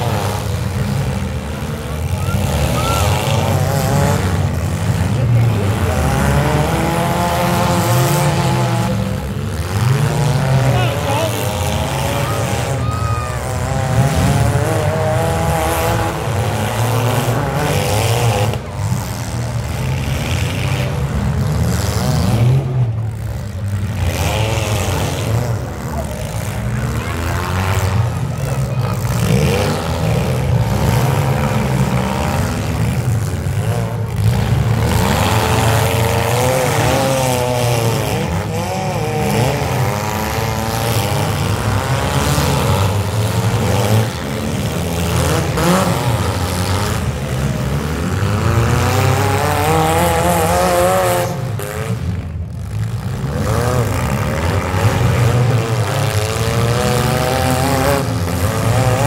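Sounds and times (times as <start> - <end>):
car engines revving: 0.0 - 59.0.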